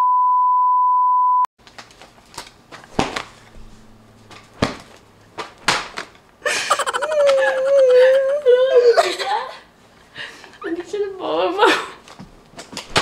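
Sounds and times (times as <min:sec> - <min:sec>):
steady beep tone: 0:00.0 - 0:01.5.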